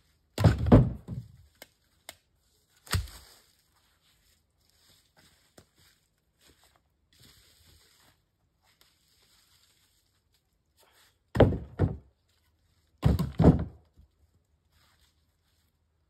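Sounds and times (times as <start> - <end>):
faint scraping and shuffling: 1.4 - 11.3, 14.0 - 16.0.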